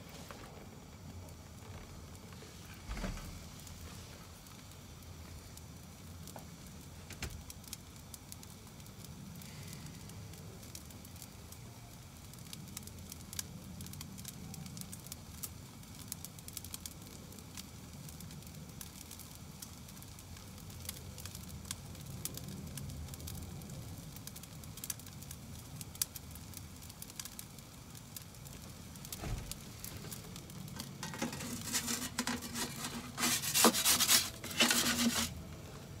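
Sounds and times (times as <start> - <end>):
gas burner flame: 0.0 - 36.0
pizza crackling on stone: 0.0 - 36.0
peel scraping across oven floor: 29.5 - 35.4.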